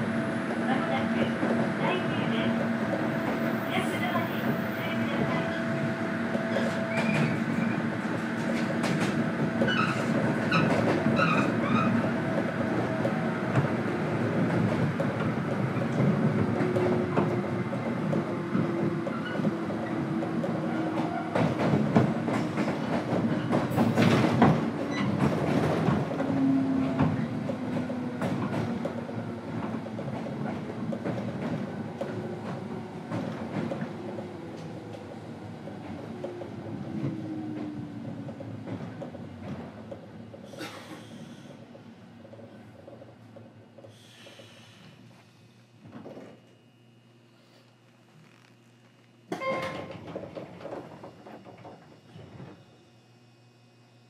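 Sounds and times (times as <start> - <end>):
train wheels clattering over rails: 6.4 - 35.1.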